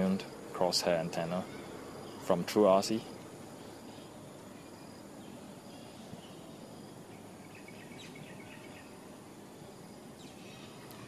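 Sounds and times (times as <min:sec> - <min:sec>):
faint outdoor background noise: 0:00.0 - 0:11.0
faint high chirps: 0:03.0 - 0:11.0.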